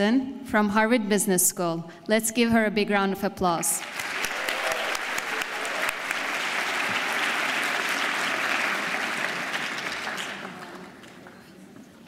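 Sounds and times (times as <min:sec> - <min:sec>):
audience applause: 0:03.8 - 0:11.6.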